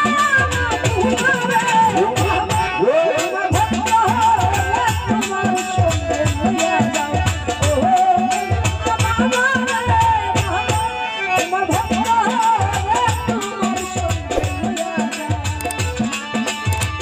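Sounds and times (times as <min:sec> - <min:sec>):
woman singing: 0:00.0 - 0:16.5
rattling percussion: 0:11.5 - 0:17.0.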